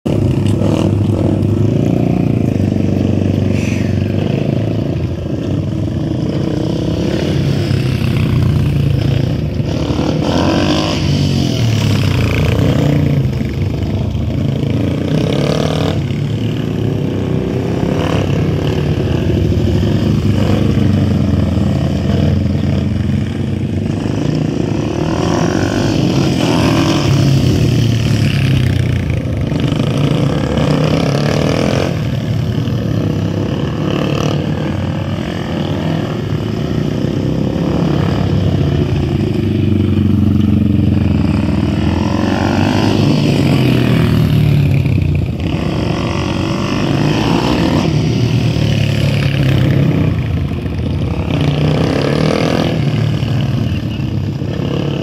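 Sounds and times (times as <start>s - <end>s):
small motorcycle engines revving: 0.1s - 55.0s.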